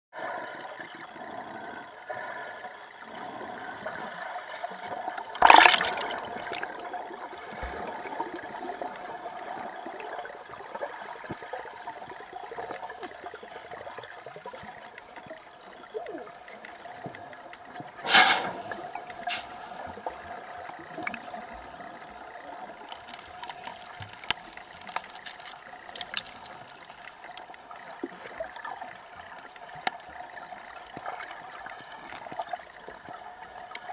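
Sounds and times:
crackles: 4.5 - 33.9
water rushing surges: 5.4 - 6.8.

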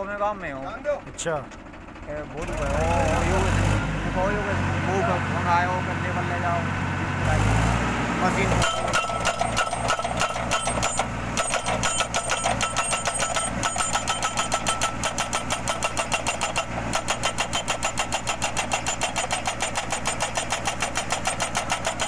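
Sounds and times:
tractor engine running: 0.0 - 22.0
hammer pounding steel post: 8.6 - 22.0.

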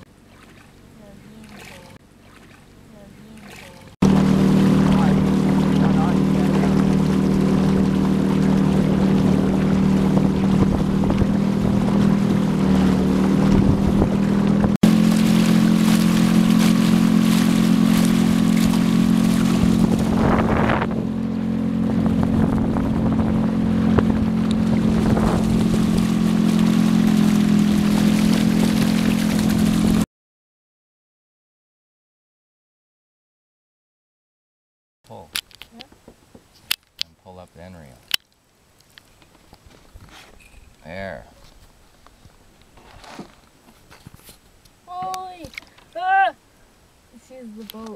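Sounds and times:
outboard motor running: 0.0 - 30.0
water rushing past hull: 0.0 - 30.0.

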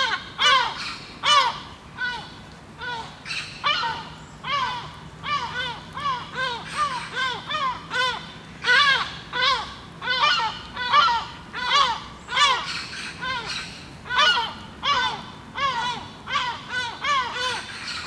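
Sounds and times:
birds giving harsh warning calls: 0.0 - 18.0.

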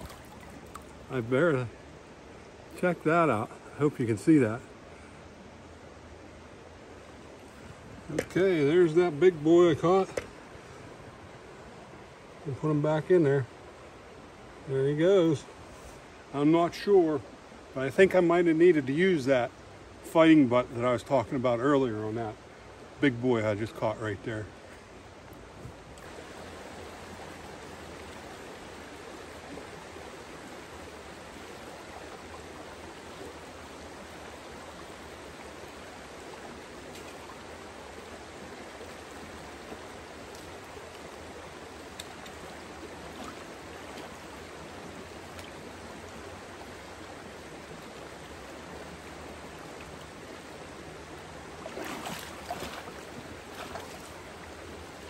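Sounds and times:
fish splashing in water: 0.0 - 1.1, 51.5 - 54.5
rocky stream flowing: 0.0 - 55.0.

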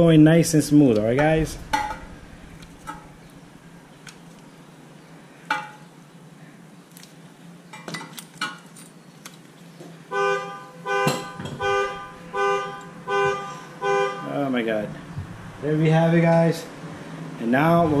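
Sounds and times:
loud horn tooting: 10.1 - 14.5.

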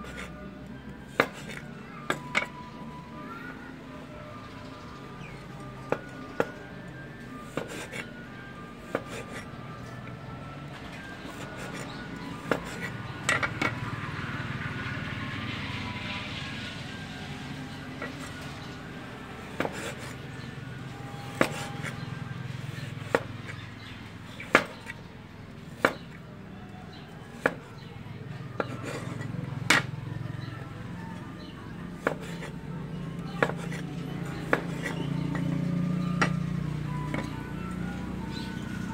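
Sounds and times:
knife chopping on wooden board: 1.1 - 2.6, 7.4 - 8.1, 8.8 - 9.4, 11.2 - 13.6, 19.5 - 20.2, 21.3 - 22.0, 22.7 - 23.6, 24.4 - 25.0, 25.8 - 26.1, 27.3 - 27.7, 28.6 - 29.9, 32.0 - 32.5, 33.3 - 35.6.

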